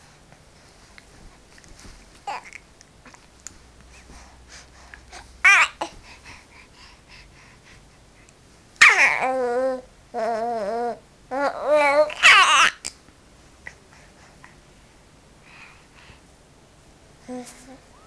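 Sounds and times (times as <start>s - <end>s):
baby babbling and squealing: 5.5s - 5.9s, 8.8s - 12.9s.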